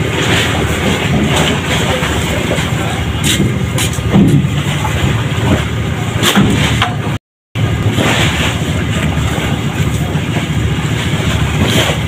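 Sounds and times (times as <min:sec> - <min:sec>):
engine running steadily: 0:00.0 - 0:12.0
wooden planks knocking and clattering: 0:03.2 - 0:05.6.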